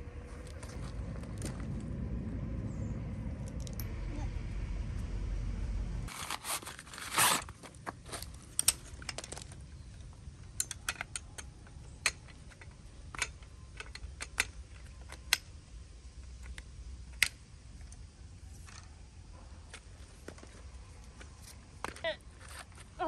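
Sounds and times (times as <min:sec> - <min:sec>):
poles clicking and rattling: 0:07.6 - 0:15.6.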